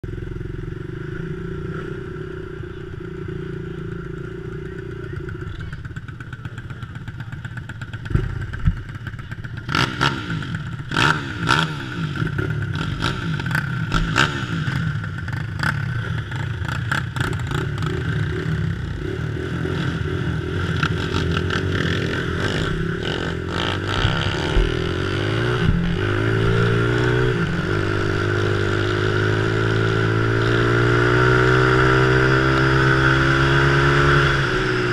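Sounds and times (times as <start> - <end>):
trike engines idling and blipping: 0.0 - 34.9
engine revving up: 17.5 - 34.9.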